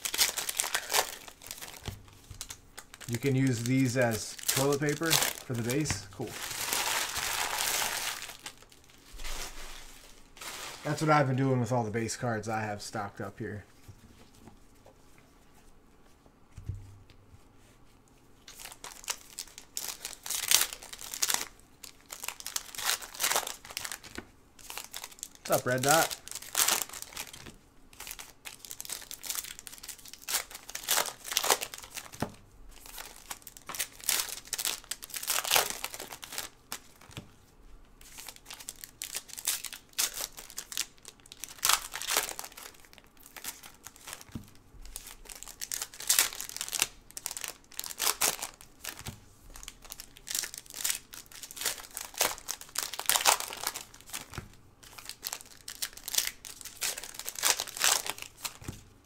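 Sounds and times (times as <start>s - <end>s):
cards shuffling: 0.0s - 8.6s
card pack wrappers crinkling tearing: 0.0s - 11.5s, 18.4s - 37.2s, 38.0s - 58.8s.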